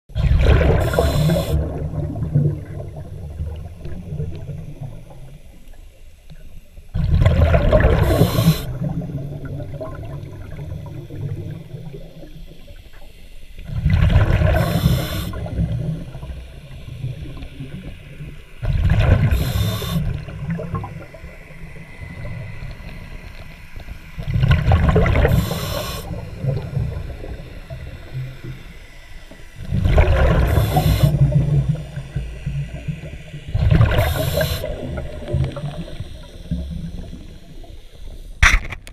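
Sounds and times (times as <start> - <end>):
exhaled bubbles bursting: 0.1 - 5.3, 7.0 - 12.2, 13.7 - 16.4, 18.6 - 21.1, 24.2 - 27.8, 29.6 - 37.3
diver breathing through regulator: 0.7 - 1.8, 7.8 - 9.1, 14.4 - 15.7, 19.2 - 20.3, 25.1 - 26.7, 29.8 - 33.2, 33.8 - 37.5.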